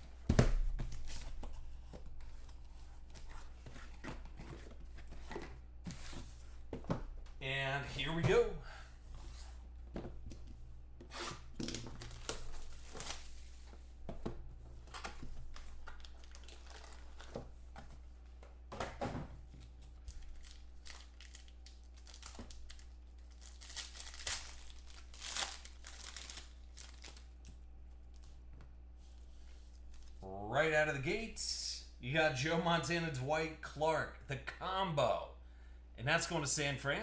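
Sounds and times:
foil wrapping crinkling and tearing: 20.0 - 27.4.

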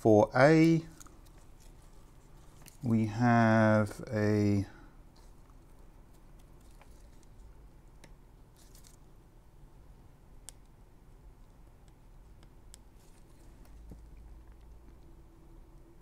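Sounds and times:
faint clicks and rustles: 0.9 - 2.9, 5.1 - 9.0, 11.4 - 15.2.

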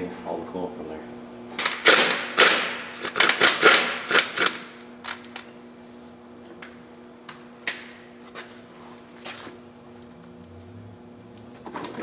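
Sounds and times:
pneumatic impact wrench hammering: 1.6 - 4.7.

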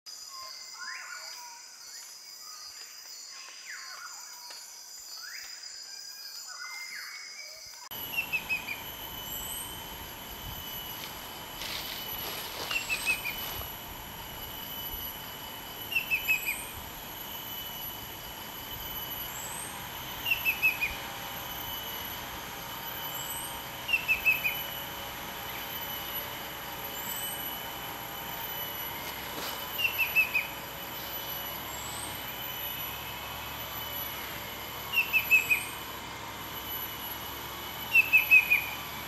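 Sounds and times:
cuckoo calling whistled notes: 7.9 - 9.8, 14.4 - 16.8, 19.0 - 21.8, 23.1 - 25.0, 29.5 - 32.2, 34.8 - 35.9, 37.8 - 38.9.

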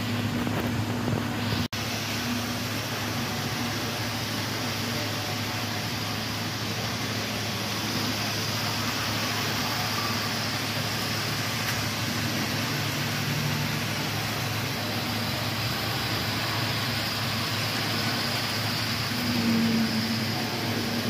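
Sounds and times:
model train motors whirring: 1.8 - 21.0.

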